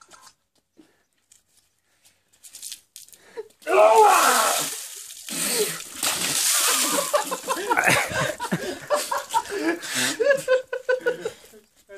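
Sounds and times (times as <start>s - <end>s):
water splashing on paving stones: 3.6s - 8.1s
man crying out: 3.7s - 4.8s.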